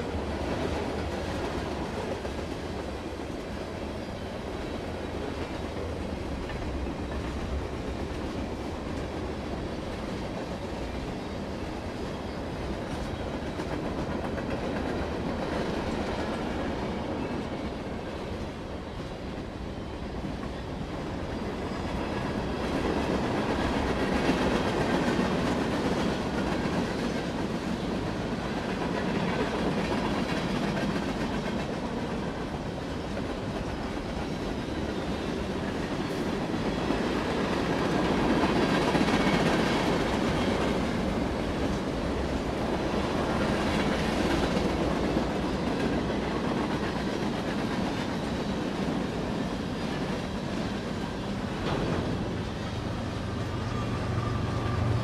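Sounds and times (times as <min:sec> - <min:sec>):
freight train rumbling past: 0:00.0 - 0:55.0
wheels clacking over rail joints: 0:21.4 - 0:54.9.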